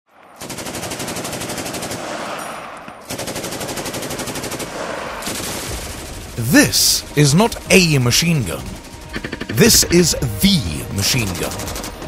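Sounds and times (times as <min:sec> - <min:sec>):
machine gun automatic fire: 0:00.4 - 0:02.3, 0:03.1 - 0:06.2, 0:08.8 - 0:09.9.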